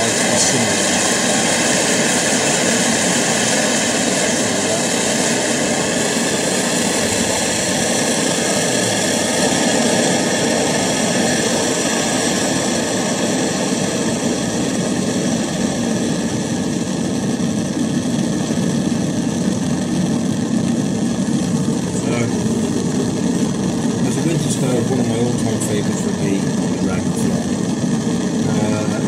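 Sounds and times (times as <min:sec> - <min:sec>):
camping stove burner hissing: 0:00.0 - 0:16.0.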